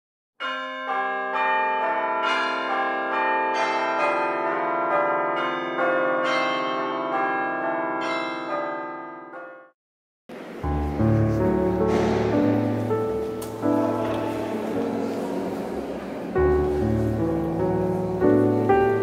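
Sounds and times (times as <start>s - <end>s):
bells ringing struck notes: 0.4s - 9.7s.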